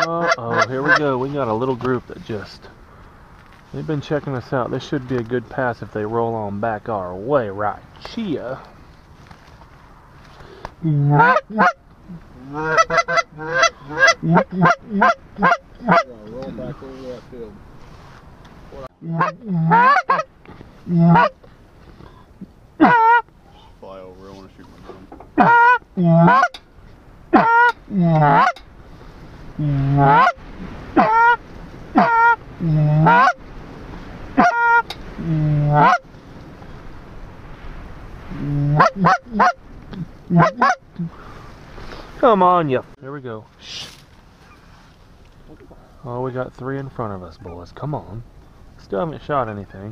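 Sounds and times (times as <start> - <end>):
goose call honks and clucks: 0.0 - 1.2, 10.8 - 16.8, 19.0 - 21.5, 22.4 - 23.7, 25.3 - 26.6, 27.3 - 28.6, 29.6 - 33.4, 34.3 - 36.1, 38.3 - 41.2.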